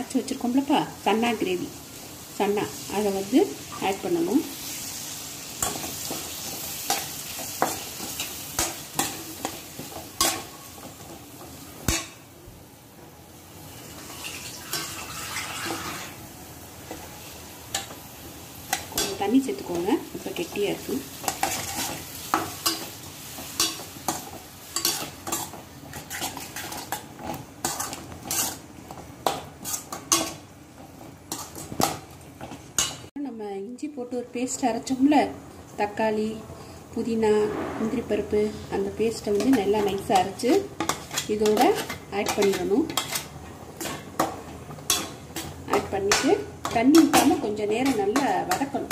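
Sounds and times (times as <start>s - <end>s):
sizzling in a pan: 0.0s - 48.9s
spatula scraping and knocking pan: 5.6s - 12.2s, 18.7s - 33.1s, 39.3s - 48.9s.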